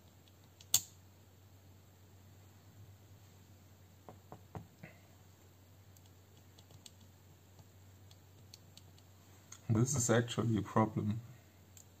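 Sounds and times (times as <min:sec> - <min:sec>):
small parts clicking and ticking: 0:00.0 - 0:00.9, 0:05.9 - 0:09.1, 0:11.7 - 0:12.0.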